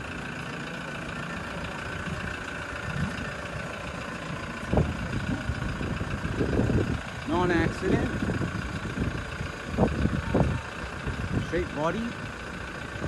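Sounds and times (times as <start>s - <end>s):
vehicle engine idling: 0.0s - 13.0s
dull low thumps: 1.9s - 11.4s.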